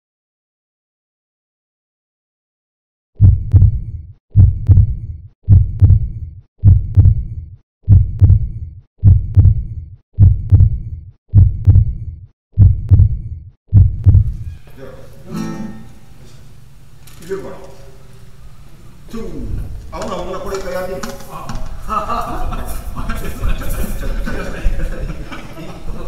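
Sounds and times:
heartbeat double thump: 0:03.2 - 0:14.4.

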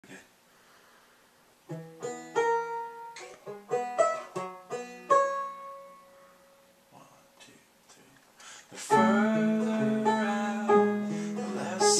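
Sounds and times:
plucked string instrument notes: 0:01.7 - 0:06.5, 0:08.9 - 0:11.9.

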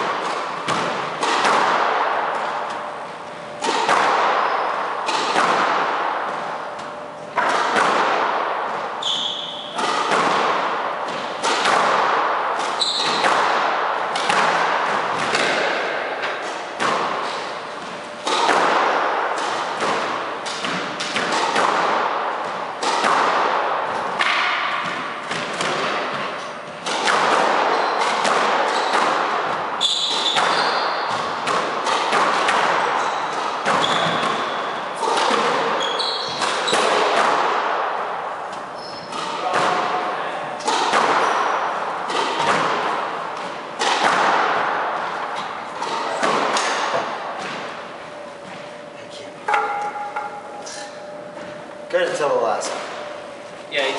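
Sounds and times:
squash ball impacts: 0:00.0 - 0:48.9, 0:49.5 - 0:53.2
shoe squeaks on wooden floor: 0:09.0 - 0:09.7, 0:12.8 - 0:13.2, 0:27.7 - 0:28.0, 0:29.8 - 0:31.1, 0:33.0 - 0:34.7, 0:35.8 - 0:36.9, 0:38.7 - 0:39.2.

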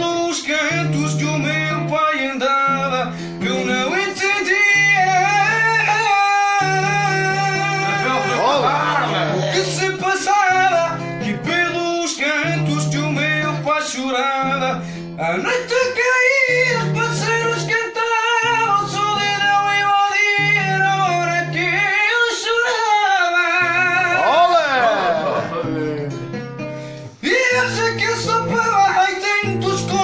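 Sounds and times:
person singing with vibrato: 0:00.0 - 0:26.3
strummed acoustic guitar: 0:00.0 - 0:30.0.

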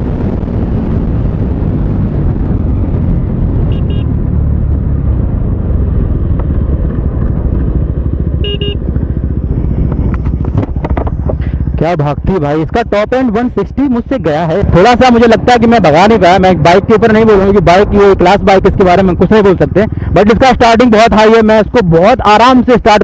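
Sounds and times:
motorcycle engine: 0:00.0 - 0:21.6
wind rush: 0:00.0 - 0:23.0
horn beeps: 0:03.7 - 0:04.1, 0:08.4 - 0:08.8.

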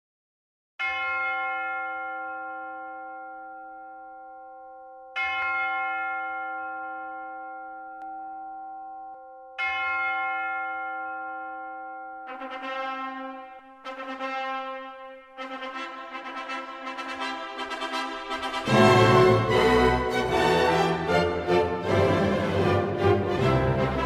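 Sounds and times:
church bell tolling: 0:00.8 - 0:13.9
brass music: 0:12.3 - 0:24.0.

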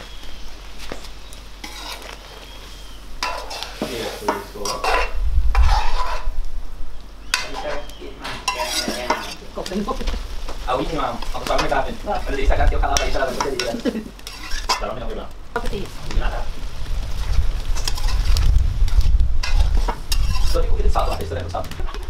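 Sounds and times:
metal spoon scraping in pot: 0:01.6 - 0:02.2, 0:03.2 - 0:06.4, 0:07.3 - 0:09.5, 0:11.2 - 0:15.0, 0:17.8 - 0:18.4, 0:19.4 - 0:21.3
low rumble: 0:05.0 - 0:07.4, 0:15.2 - 0:22.0.

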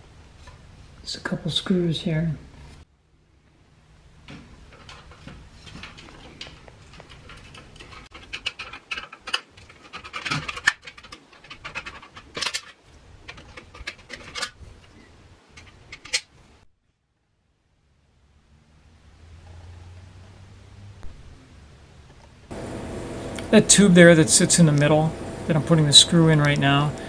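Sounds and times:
screwdriver scraping and clicking: 0:04.7 - 0:15.0.

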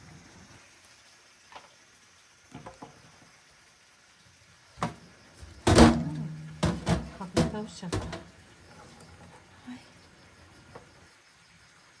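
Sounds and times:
sharp knocks: 0:05.6 - 0:08.2.

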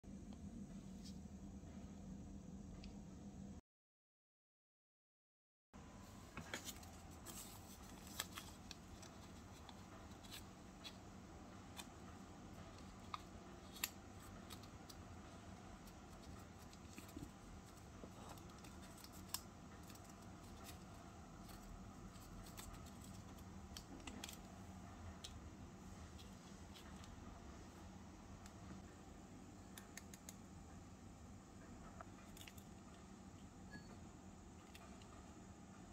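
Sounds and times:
paper crinkling: 0:06.2 - 0:27.2.

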